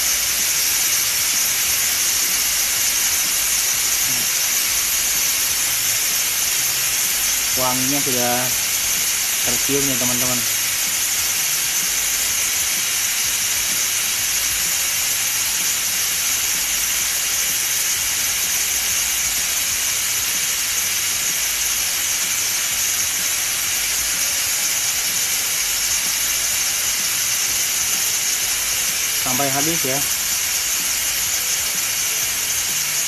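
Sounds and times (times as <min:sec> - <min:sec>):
steam hissing from pressure cooker valve: 0:00.0 - 0:33.0.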